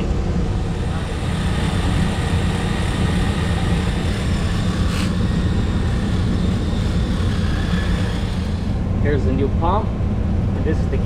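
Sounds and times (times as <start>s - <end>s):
continuous low rumble: 0.0s - 11.0s
wire brush on drill whining: 0.5s - 9.0s.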